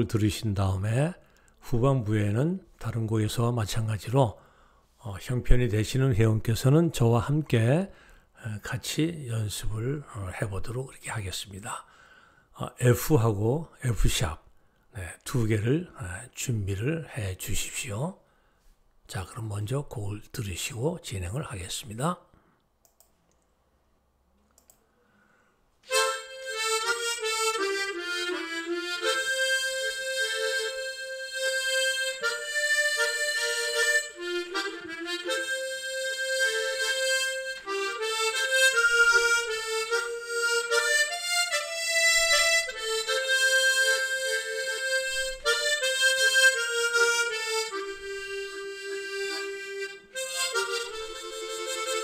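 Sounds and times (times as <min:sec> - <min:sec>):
harmonica melody: 0:25.8 - 0:52.0.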